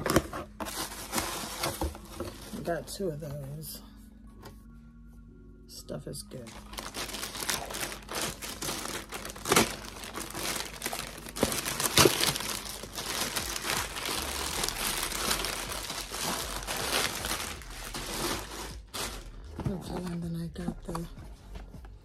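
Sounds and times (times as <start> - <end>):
plastic mailer bag crinkling: 0.0 - 2.9, 6.5 - 20.2
sharp plastic crackles: 6.5 - 19.6.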